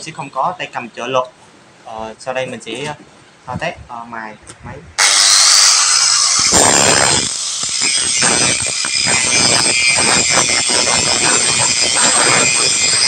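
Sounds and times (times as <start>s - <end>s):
angle grinder grinding metal: 5.0s - 13.0s.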